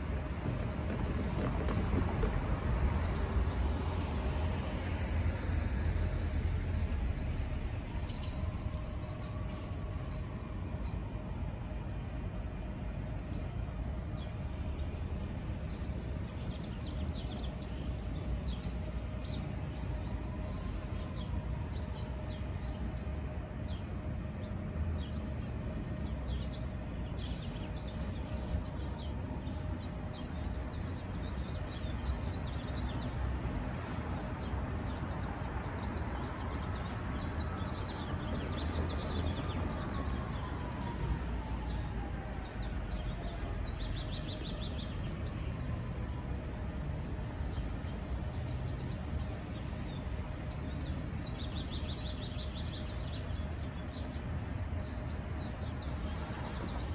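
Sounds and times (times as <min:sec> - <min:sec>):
street traffic rumble: 0:00.0 - 0:56.9
small birds chirping: 0:06.0 - 0:11.0.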